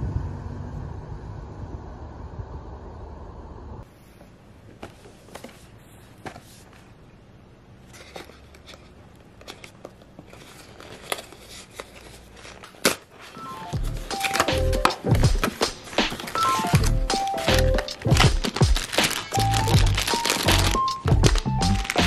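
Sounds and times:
crinkles: 7.8 - 22.0
cardboard box being opened: 7.9 - 22.0
paper tearing: 10.3 - 22.0.

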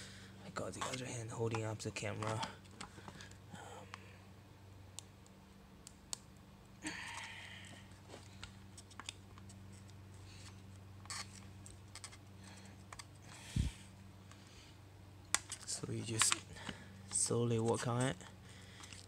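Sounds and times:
steady low hum: 0.0 - 19.0
screwdriver scraping metal: 11.0 - 11.4.

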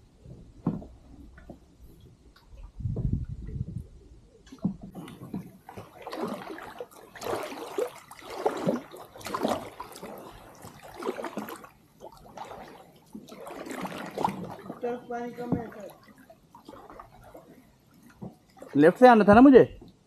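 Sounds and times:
water trickling off paddle: 0.6 - 20.0
paddle splashing in water: 4.4 - 19.5.

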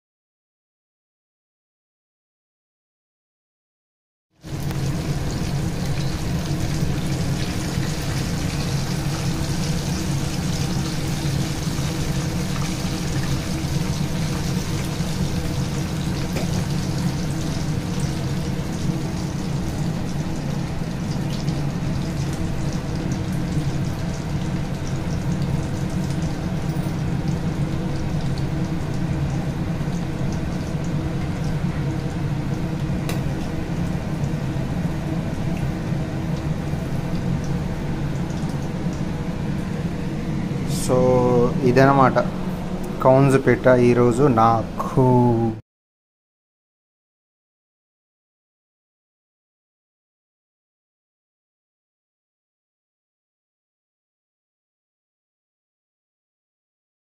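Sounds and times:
oil bubbling and sizzling: 4.4 - 40.8.

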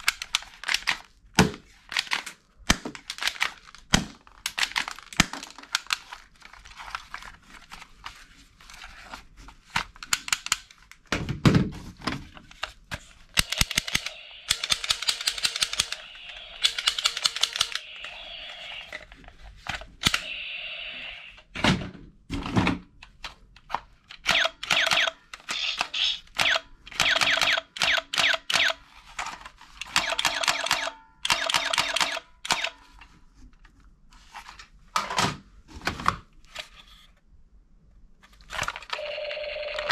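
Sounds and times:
plastic toy gun clicks: 10.0 - 10.7, 13.4 - 17.8, 24.1 - 28.8, 29.8 - 32.8
toy gun rattling clatter: 13.4 - 17.9, 24.2 - 32.7.

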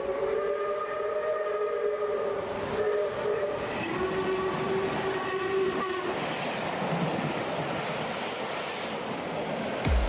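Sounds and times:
moving train noise: 0.0 - 9.9.

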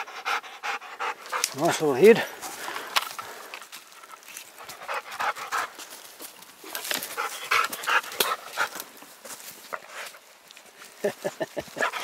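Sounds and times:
dog panting: 0.0 - 2.6, 4.0 - 6.0, 6.7 - 8.9, 11.7 - 12.0.

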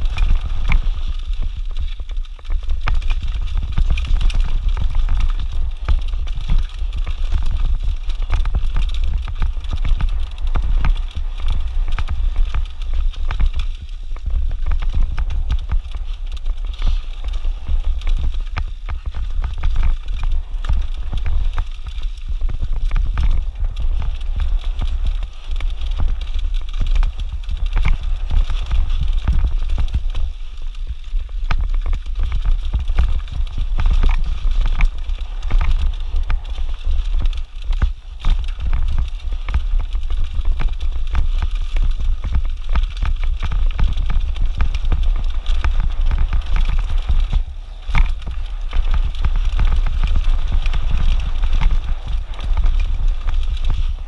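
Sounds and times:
bike rattling and knocking: 0.0 - 54.0
tyres crunching over dirt: 0.0 - 54.0
wind rumble on microphone: 0.0 - 54.0.

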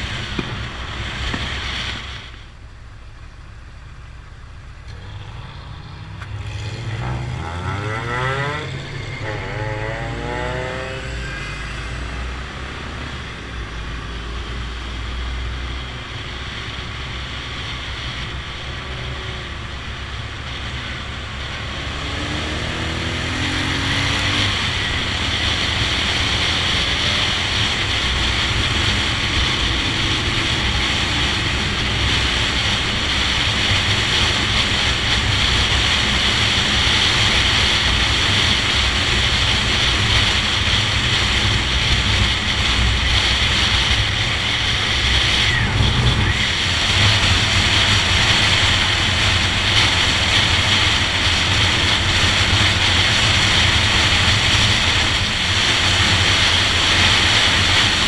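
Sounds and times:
wind rushing over microphone: 5.0 - 58.0
motorcycle engine running: 14.5 - 58.0.

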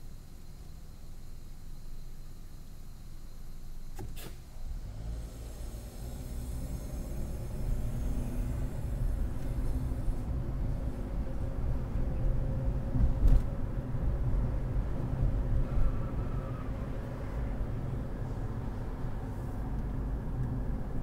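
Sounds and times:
car cabin road rumble: 3.4 - 21.0
thump: 3.9 - 4.4.

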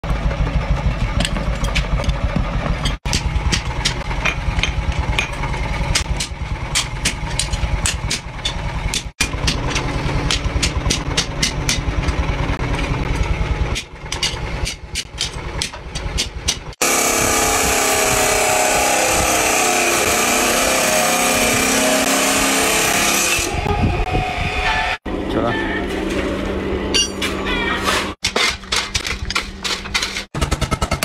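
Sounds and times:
hammer ringing on anvil: 27.0 - 27.2.

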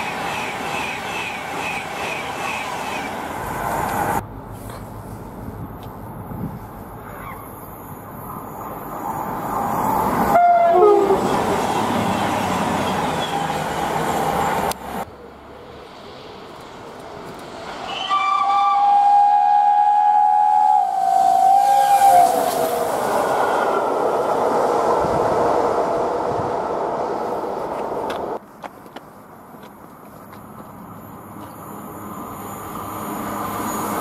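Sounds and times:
train running past: 0.0 - 6.5, 7.6 - 28.4, 30.3 - 34.0
train horn: 10.3 - 11.3, 17.9 - 23.0.

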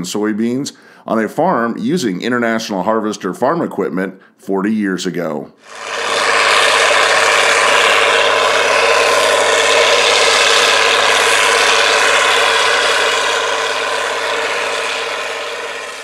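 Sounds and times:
tractor diesel engine under load: 5.6 - 16.0.

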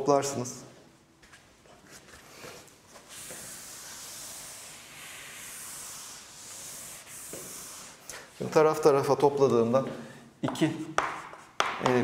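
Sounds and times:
hissing strokes on a board: 3.0 - 8.3.

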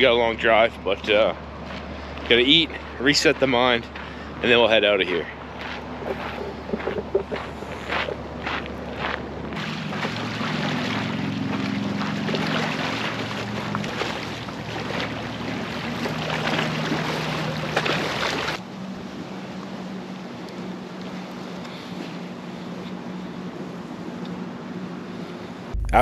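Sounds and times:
engine humming: 0.0 - 26.0
steady rushing noise: 4.5 - 13.8.

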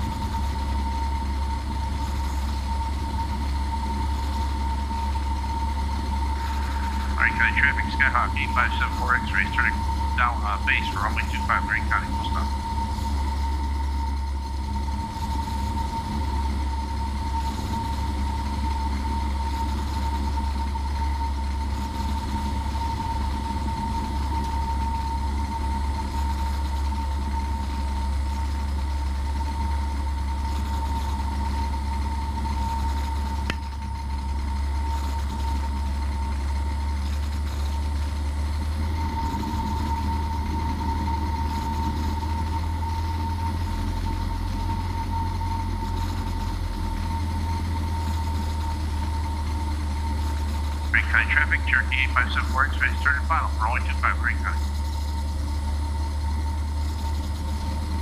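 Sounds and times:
aircraft engine droning: 0.0 - 58.0
steady high tone: 6.2 - 12.9, 50.9 - 54.7.

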